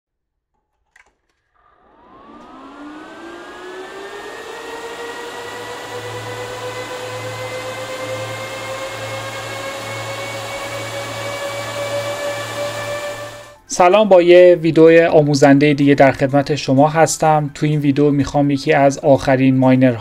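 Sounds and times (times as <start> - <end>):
cooling fans whining: 1.6 - 13.6
low pulsing hum: 1.8 - 13.6.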